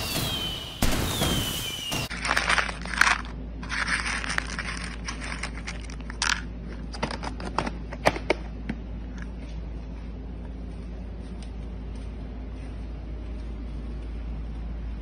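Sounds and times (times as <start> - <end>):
kibble rattling in plastic cup: 2.1 - 6.5.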